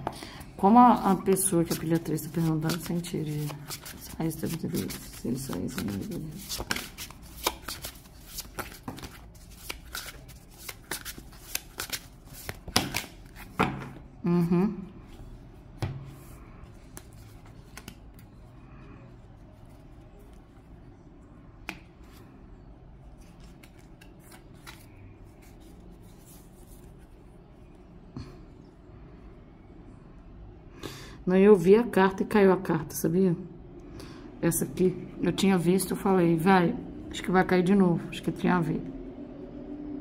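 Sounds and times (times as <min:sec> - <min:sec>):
cards shuffling: 0:01.3 - 0:14.0, 0:16.8 - 0:18.2, 0:23.2 - 0:27.0.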